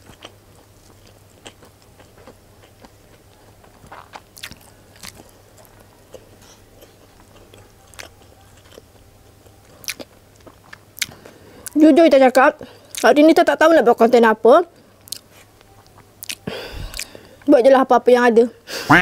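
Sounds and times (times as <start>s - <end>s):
chewing food close up: 0.0s - 13.2s, 15.0s - 17.4s.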